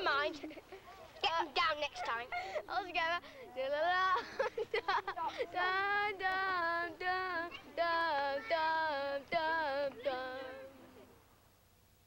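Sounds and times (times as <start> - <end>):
high voices singing: 5.5 - 10.8.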